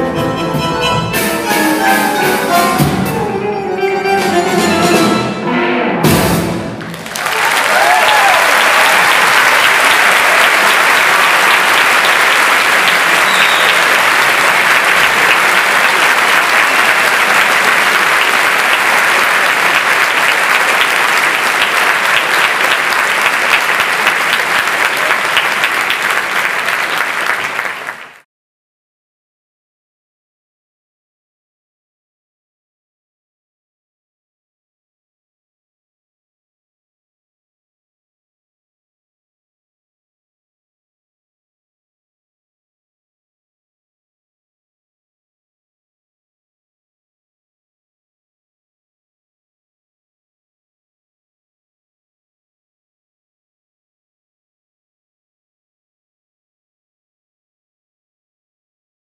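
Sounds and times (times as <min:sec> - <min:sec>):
tango jazz band playing: 0:00.0 - 0:06.8
audience applauding: 0:06.8 - 0:28.2.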